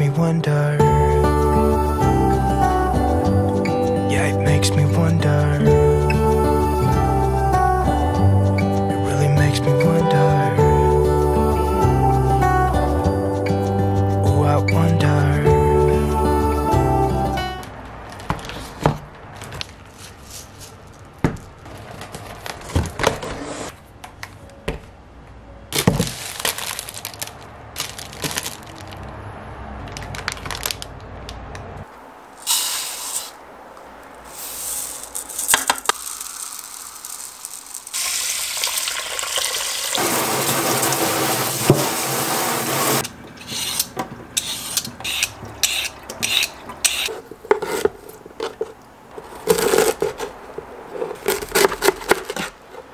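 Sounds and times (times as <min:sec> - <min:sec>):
packaging clicks and knocks: 0:25.8 - 0:29.0, 0:47.5 - 0:52.9
water running into a pot: 0:35.8 - 0:43.1
scraping strokes peeling root: 0:43.4 - 0:52.9.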